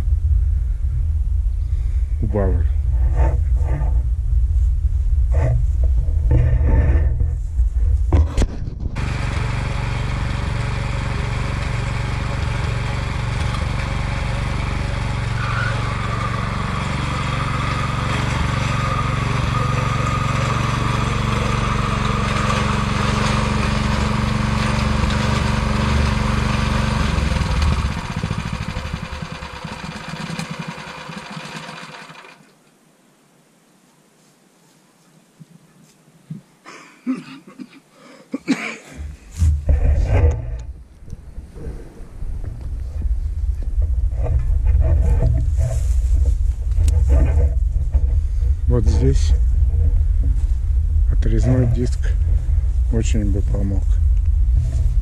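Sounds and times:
small petrol engine running: 9.0 - 32.5, 43.6 - 55.0.

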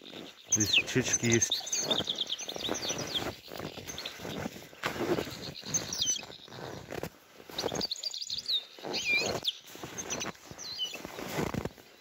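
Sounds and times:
finches chirping: 0.0 - 4.4, 5.2 - 6.6
footsteps crunching in snow: 0.0 - 12.0.

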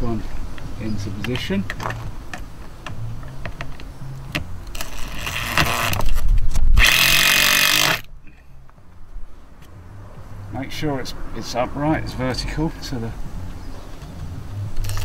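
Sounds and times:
drill driving screw: 4.7 - 6.1, 6.8 - 8.1.

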